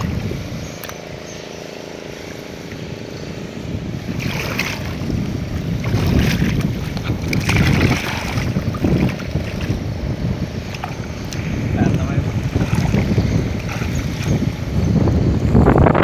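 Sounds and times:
wind rumble on microphone: 0.0s - 16.0s
muddy water splashing: 3.8s - 14.8s.

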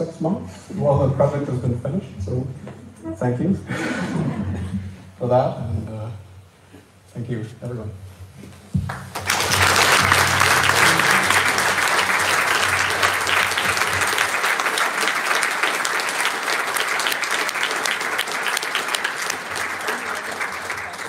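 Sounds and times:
audience applauding: 8.8s - 21.0s.

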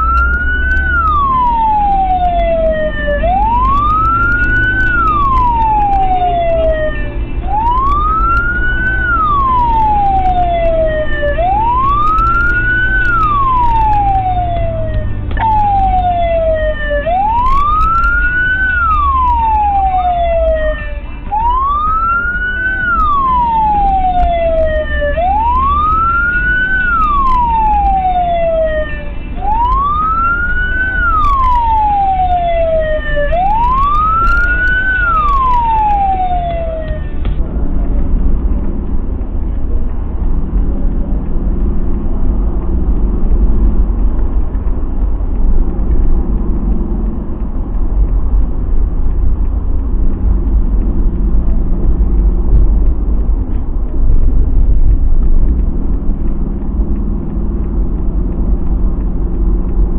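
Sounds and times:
emergency vehicle siren wailing: 0.0s - 59.9s
engine and road rumble: 0.0s - 59.9s.

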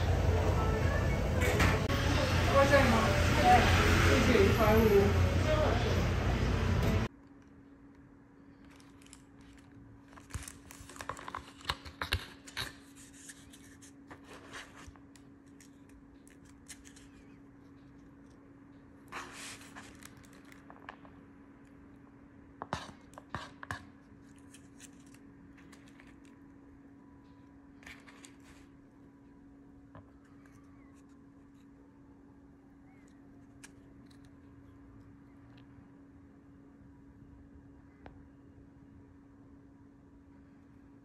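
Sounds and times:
faint steady hum: 0.0s - 41.0s
plastic bag crinkling: 8.4s - 12.0s, 19.2s - 21.1s
paper box being handled: 8.6s - 17.4s.

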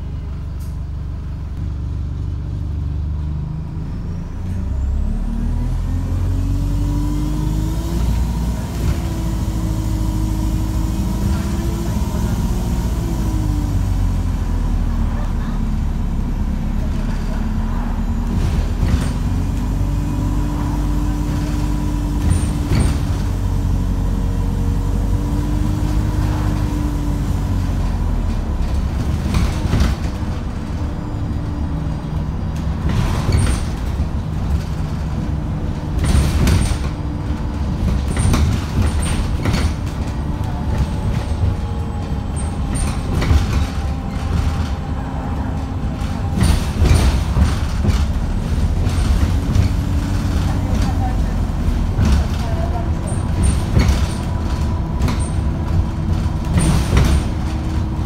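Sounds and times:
bus engine droning: 0.0s - 58.0s
bodywork knocks and rattles: 32.5s - 45.0s, 46.0s - 58.0s.

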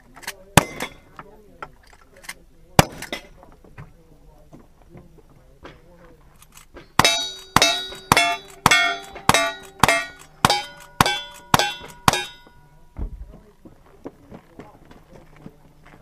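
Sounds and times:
gunshots: 0.6s - 1.0s, 2.8s - 3.3s, 7.0s - 12.4s
steel target clanging: 0.6s - 1.2s, 6.7s - 12.9s.

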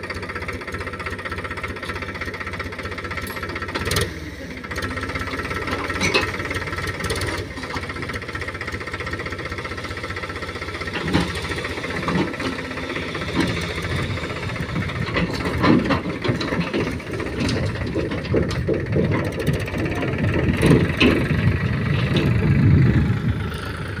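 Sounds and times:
tractor diesel engine running: 0.0s - 24.0s
metal clanks: 5.8s - 6.6s, 14.6s - 22.4s.

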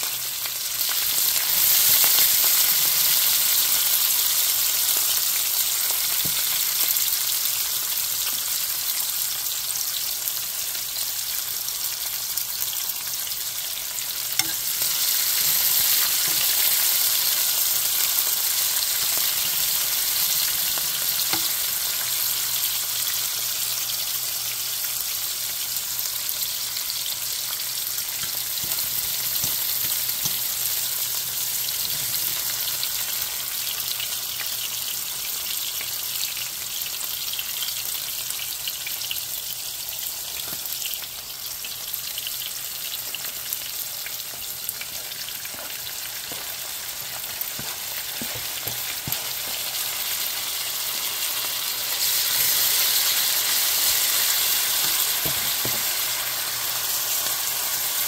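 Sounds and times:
vegetables sizzling in a skillet: 0.0s - 58.0s
fork clinking: 14.4s - 16.8s
tomatoes scraped into pan: 45.0s - 50.2s.

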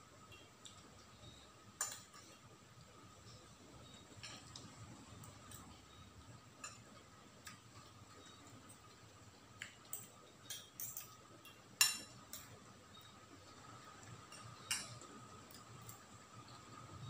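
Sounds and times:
cutlery clinking on a plate: 1.8s - 2.3s, 9.9s - 12.5s, 14.2s - 16.0s.

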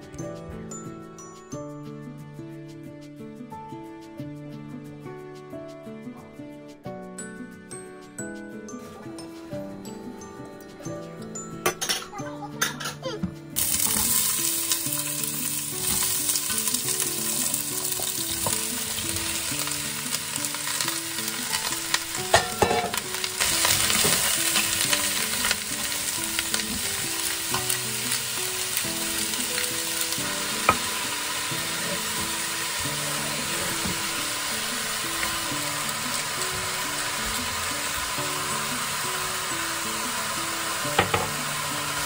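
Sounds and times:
vegetables sizzling in oil: 13.6s - 42.0s.

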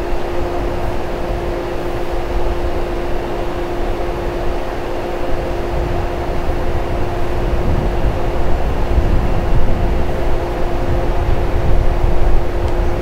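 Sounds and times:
electric train idling hum: 0.0s - 13.0s
whine of held tones: 0.0s - 13.0s.

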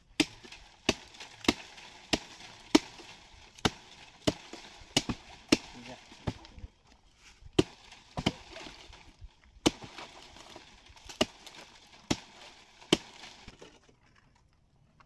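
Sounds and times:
hatchet chopping palm trunk: 0.1s - 13.6s.

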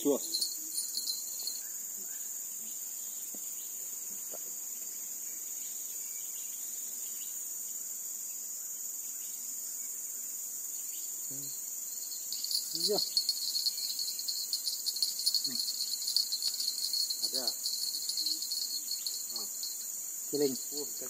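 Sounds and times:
insects shrilling: 0.0s - 2.7s, 10.8s - 21.0s.

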